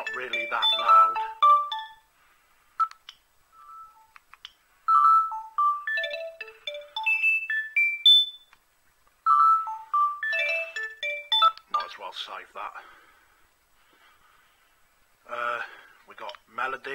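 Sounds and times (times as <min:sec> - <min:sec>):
phone ringtone melody: 0:00.0 - 0:02.1, 0:03.6 - 0:04.2, 0:04.9 - 0:08.5, 0:09.2 - 0:11.9
phone beeps and clicks: 0:02.8 - 0:04.2, 0:04.9 - 0:08.6, 0:09.2 - 0:11.9.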